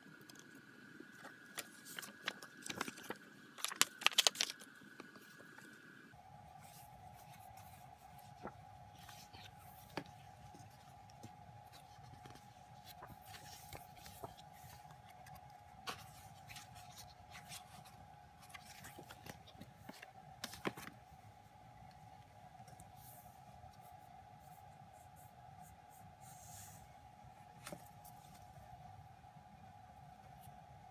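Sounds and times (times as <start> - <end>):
faint steady hum: 0.0 - 30.9
paper pages rustling: 1.2 - 5.8, 6.6 - 21.0.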